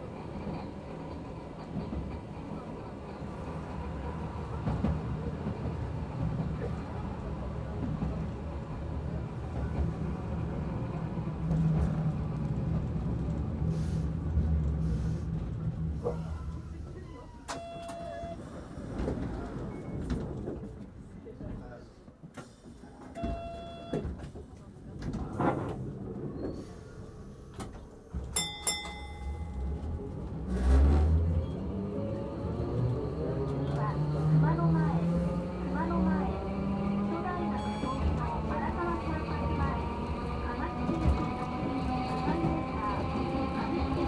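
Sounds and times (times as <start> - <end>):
streetcar wheels rumbling: 0.0 - 44.0
tram bell dinging: 17.5 - 18.4, 23.2 - 24.1, 28.3 - 30.2.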